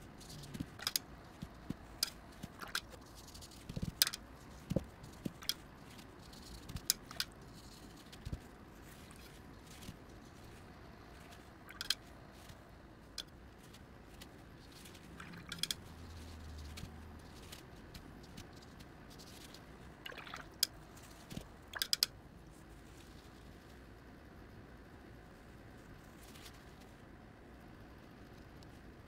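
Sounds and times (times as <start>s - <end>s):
faint steady background noise: 0.0s - 29.0s.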